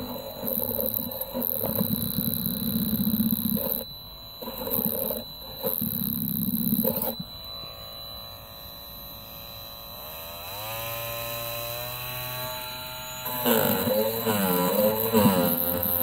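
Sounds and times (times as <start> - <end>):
oscillating multi-tool buzzing: 0.0 - 16.0
blade scraping paint off wood: 13.3 - 16.0.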